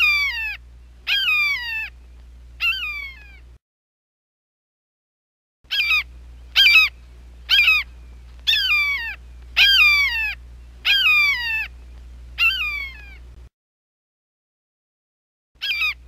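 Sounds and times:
steady low hum: 0.0 - 3.6, 5.7 - 13.5.

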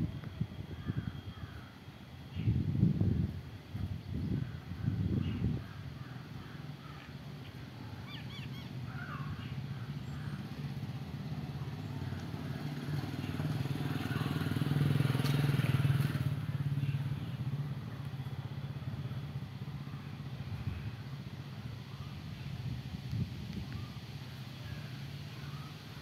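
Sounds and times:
vehicle engine passing by: 7.6 - 26.0.

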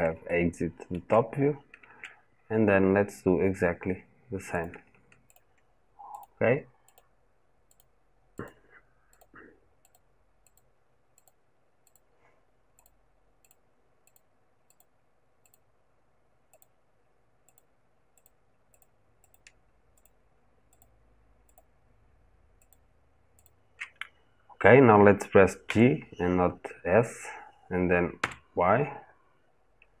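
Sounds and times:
computer mouse clicking: 4.6 - 7.1, 7.7 - 12.1, 12.8 - 15.7, 16.5 - 16.8, 17.5 - 21.7, 22.6 - 22.8, 23.4 - 24.2.

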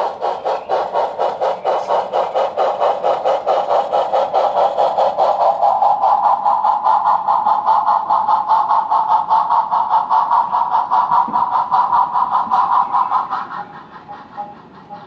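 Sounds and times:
continuous pitched hum: 0.0 - 15.0
model steam locomotive chuffing: 0.0 - 15.0.

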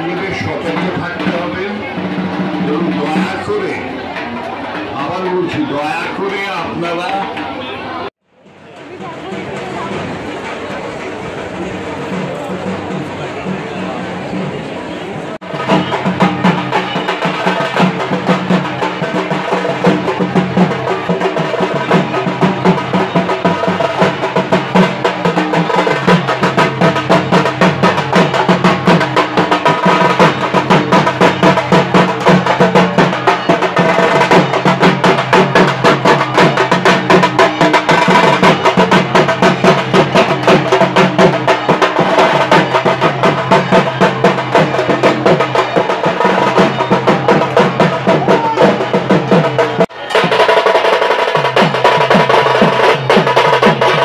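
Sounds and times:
barrel drums beaten fast: 0.0 - 4.4, 15.4 - 54.0.

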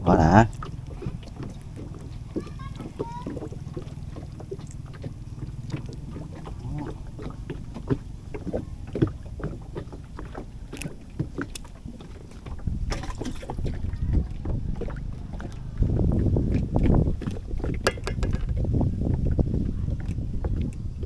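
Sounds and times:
low rumble: 0.9 - 10.7, 11.9 - 21.0
hands clicking and rustling fishing line: 10.7 - 12.2.

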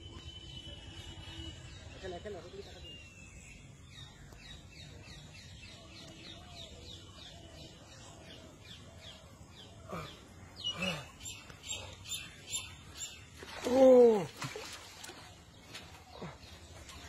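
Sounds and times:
bird chirping: 0.0 - 13.6
lower bird calls: 3.0 - 17.0.

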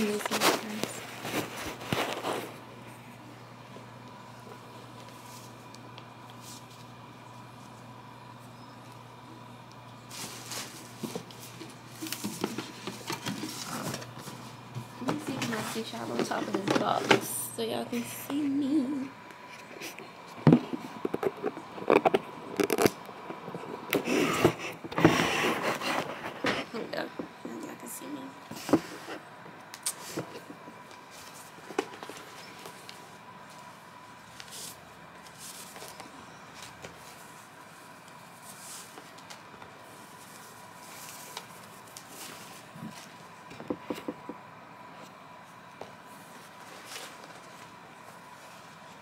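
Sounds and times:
plastic wrapping crinkling: 0.0 - 2.6.

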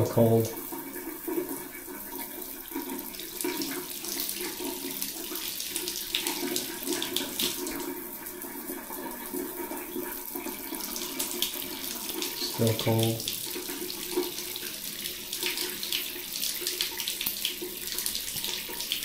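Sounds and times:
shower water splashing on hand: 2.7 - 7.9, 10.3 - 19.0.

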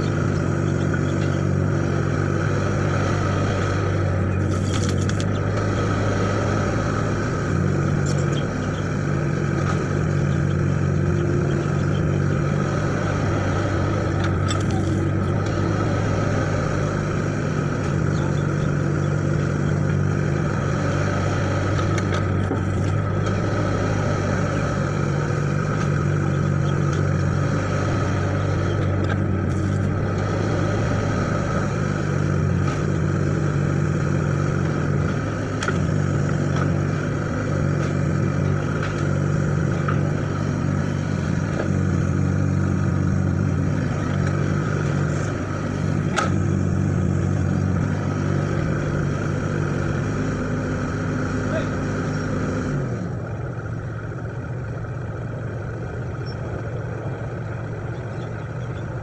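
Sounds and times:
excavator diesel engine idling: 0.0 - 59.0.

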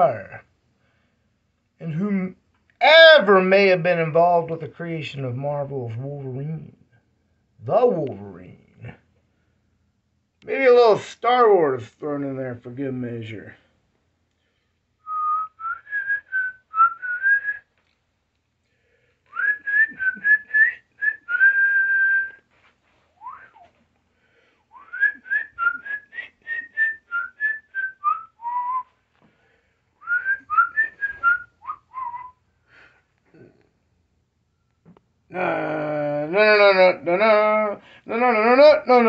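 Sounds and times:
person whistling a tune: 15.1 - 17.6, 19.3 - 22.4, 23.2 - 23.6, 24.8 - 28.9, 30.0 - 32.4.

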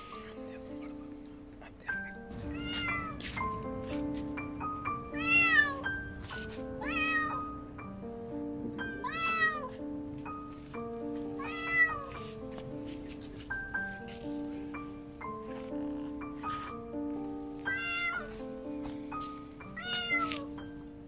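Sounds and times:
background music: 0.0 - 21.0
kitten meowing: 2.4 - 3.4, 4.8 - 6.0, 6.6 - 7.6, 8.8 - 9.8, 11.4 - 12.3, 17.6 - 18.4, 19.8 - 20.6.

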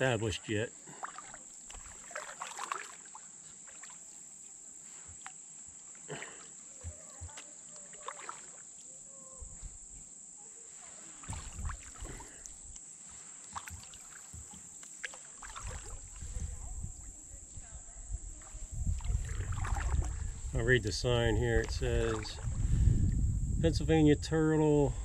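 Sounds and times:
paddle splashing in water: 0.7 - 9.0, 10.7 - 17.6, 18.3 - 20.6, 21.6 - 22.8
water dripping: 0.9 - 4.0, 13.5 - 16.3.

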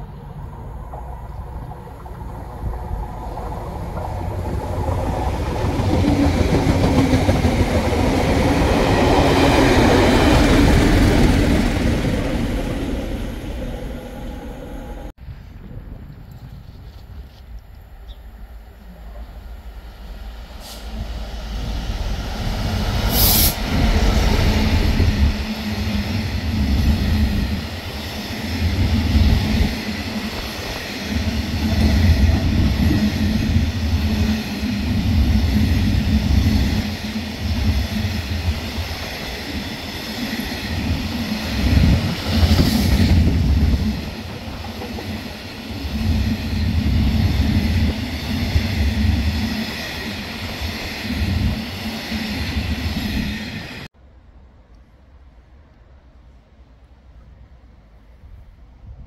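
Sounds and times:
train wheels rumbling on track: 0.0 - 15.1, 16.3 - 53.9.

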